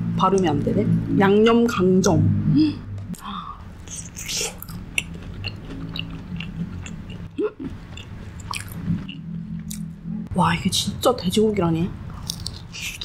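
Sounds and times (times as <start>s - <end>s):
crunchy chewing: 3.8s - 9.8s, 12.2s - 13.0s.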